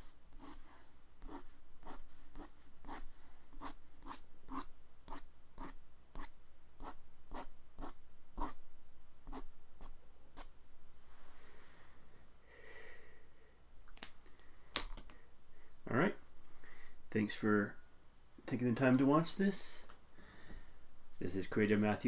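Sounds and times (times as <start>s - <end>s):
pen scratching on paper: 0.0s - 8.6s, 9.2s - 10.5s.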